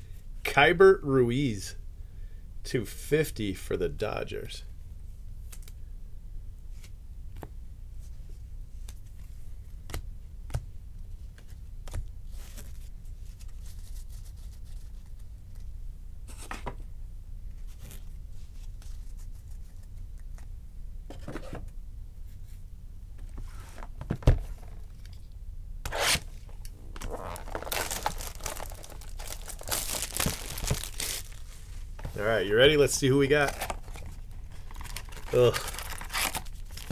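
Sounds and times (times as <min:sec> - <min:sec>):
plastic wrapping crinkling and tearing: 0:26.5 - 0:31.6, 0:32.2 - 0:36.9.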